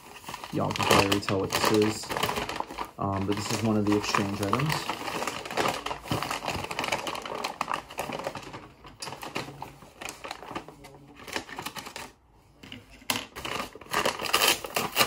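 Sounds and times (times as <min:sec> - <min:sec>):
plastic mailer crinkling: 0:00.0 - 0:12.2, 0:13.0 - 0:15.0
scissors cutting plastic: 0:13.1 - 0:15.0.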